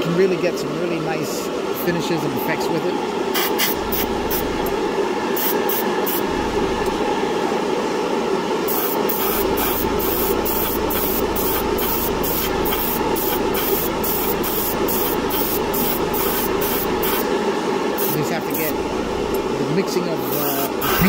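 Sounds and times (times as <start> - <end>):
steady background hum: 0.0 - 21.0
airbrush hissing puffs: 3.4 - 4.5, 20.2 - 21.0.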